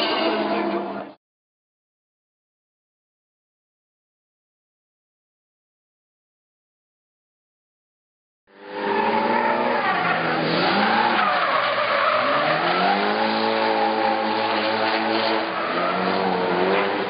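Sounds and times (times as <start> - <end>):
car engine revving high: 8.5 - 17.0.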